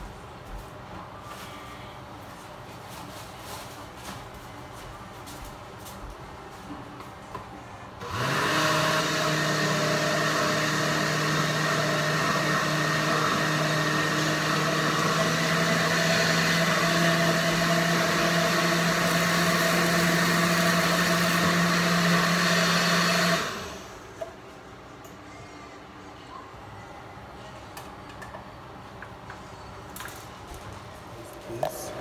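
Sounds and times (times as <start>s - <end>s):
blender running: 8.0s - 24.0s.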